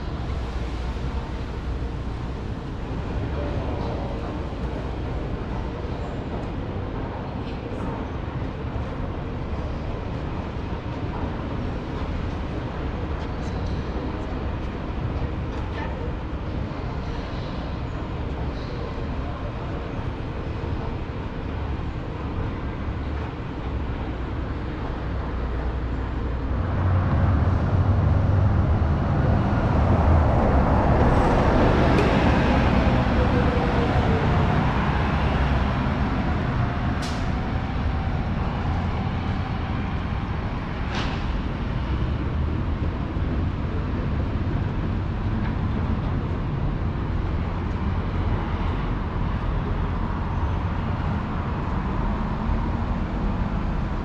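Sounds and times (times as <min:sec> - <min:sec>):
street traffic rumble: 0:00.0 - 0:54.0
heavy vehicle passing: 0:26.3 - 0:42.6.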